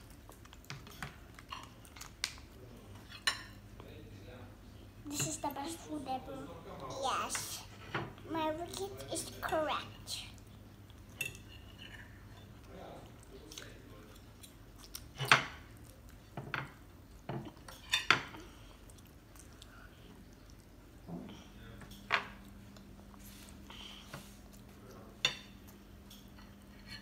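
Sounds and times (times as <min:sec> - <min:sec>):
forks clinking on plates: 0:11.2 - 0:12.5.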